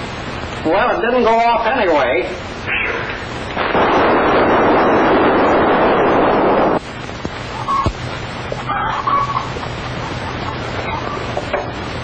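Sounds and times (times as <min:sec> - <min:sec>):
firecracker exploding: 0:03.5 - 0:08.1
chickens clucking: 0:08.5 - 0:11.6.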